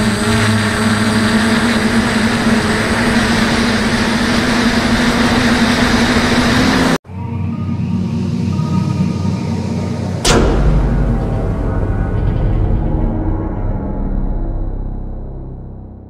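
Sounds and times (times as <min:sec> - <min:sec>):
drone motors humming: 0:00.0 - 0:16.0.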